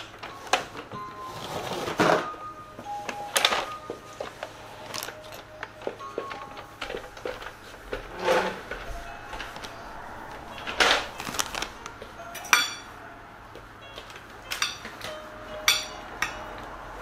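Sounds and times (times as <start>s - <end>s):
soft rustles: 2.8s - 12.2s.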